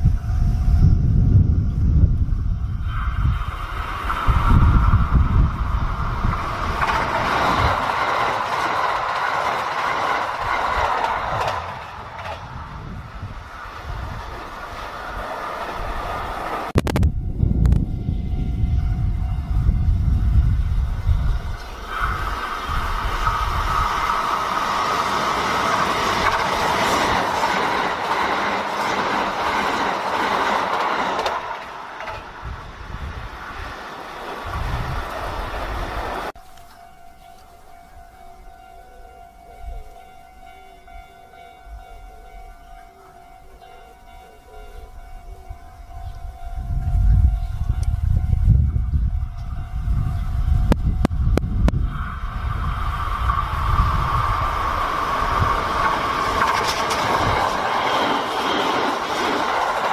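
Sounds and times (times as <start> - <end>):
train wheels rushing on rail: 0.0 - 36.4, 38.4 - 59.9
wind buffeting microphone: 0.0 - 36.4, 44.8 - 59.9
wheels clacking over rail joints: 2.9 - 16.9, 21.1 - 45.6, 50.6 - 59.9.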